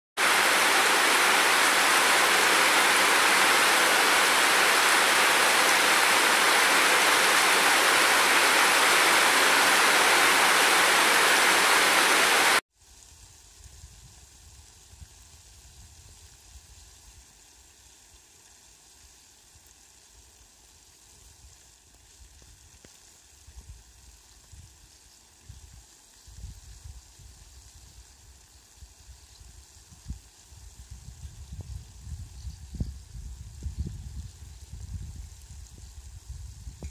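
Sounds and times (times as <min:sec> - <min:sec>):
heavy rain pouring: 0:00.2 - 0:12.6.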